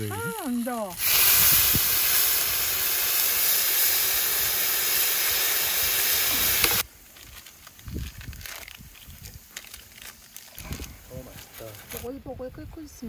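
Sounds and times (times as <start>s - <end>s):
water hissing on hot griddle: 0.0s - 6.9s.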